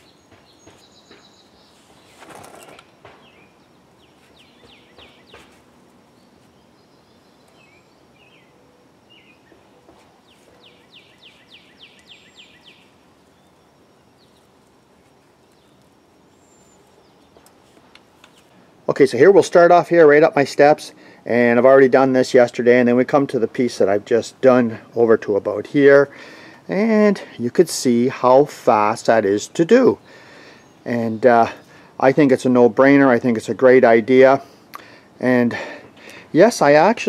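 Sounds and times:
rustling noise: 0.0s - 3.3s, 4.1s - 6.6s, 9.9s - 11.5s, 14.2s - 16.0s, 16.6s - 18.6s
birds chirping: 0.0s - 37.0s.

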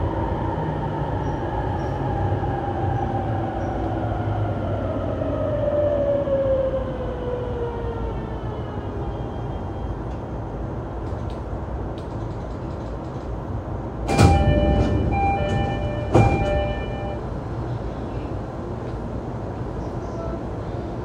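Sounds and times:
train rumbling: 0.0s - 21.0s
train doors thudding: 11.0s - 17.6s
two-tone door chime: 14.1s - 17.2s.

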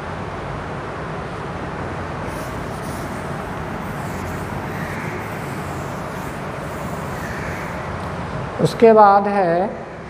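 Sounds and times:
background hiss and hum: 1.8s - 8.9s
duster brushing on blackboard: 2.2s - 8.0s.

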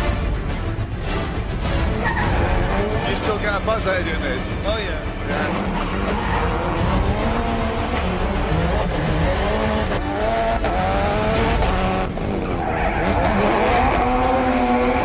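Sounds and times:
tyres skidding and squealing: 1.6s - 15.0s
car engine revving: 1.8s - 15.0s.

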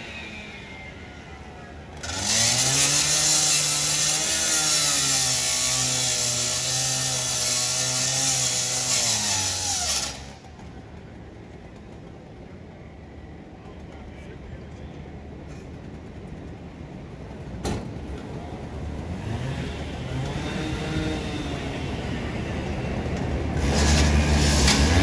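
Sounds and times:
gas-powered saw cutting metal: 0.0s - 10.5s, 19.2s - 22.4s, 23.6s - 25.0s.

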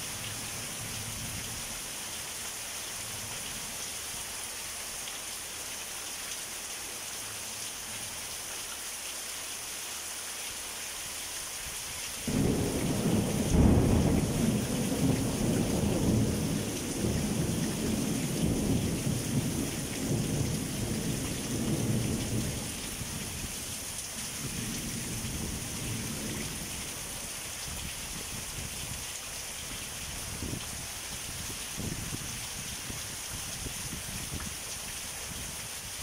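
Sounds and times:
steady rain: 0.0s - 36.0s
thunder rumbling: 12.3s - 23.3s.

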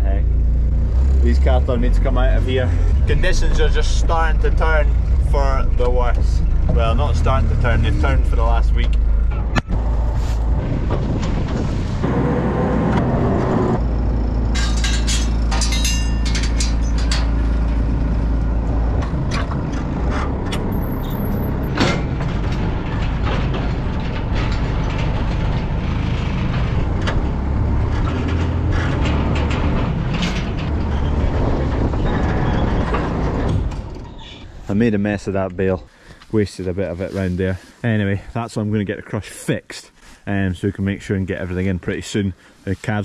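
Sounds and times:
tractor engine running: 0.0s - 34.0s
loader knocking and rattling: 0.3s - 34.6s.

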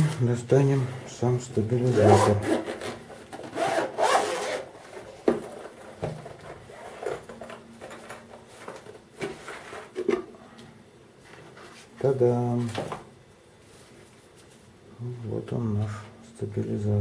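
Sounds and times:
zipper being pulled open: 1.9s - 4.7s.

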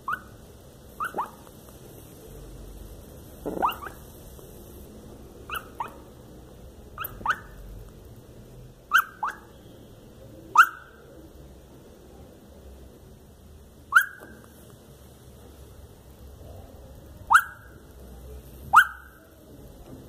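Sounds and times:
puppy yipping and whimpering: 0.0s - 0.3s, 1.0s - 1.4s, 3.5s - 4.0s, 5.5s - 6.0s, 7.0s - 7.5s, 8.9s - 9.5s, 10.6s - 11.0s, 13.9s - 14.4s.

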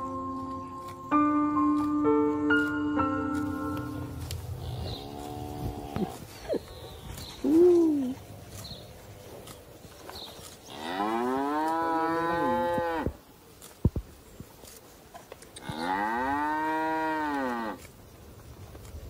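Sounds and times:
calf mooing: 10.7s - 13.1s, 15.6s - 17.8s.

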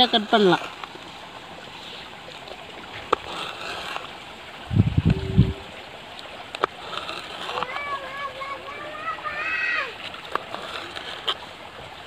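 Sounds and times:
stream water rushing: 0.0s - 12.0s
low rumble: 4.6s - 5.7s.

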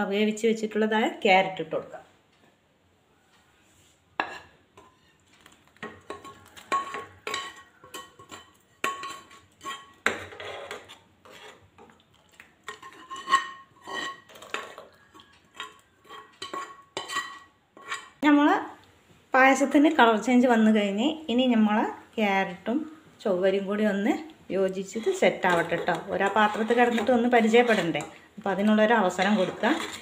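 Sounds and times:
wooden spatula scraping a pan: 3.6s - 11.9s, 12.6s - 18.2s, 24.8s - 30.0s
steel spoon scraping a pan: 4.2s - 5.2s, 5.8s - 11.9s, 12.6s - 18.2s, 24.7s - 30.0s.

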